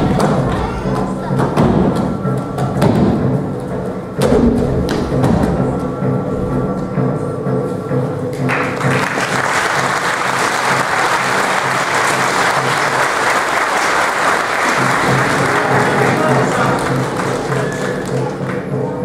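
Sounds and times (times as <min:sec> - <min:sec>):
background music: 0:00.0 - 0:19.0
audience applause: 0:08.5 - 0:18.7.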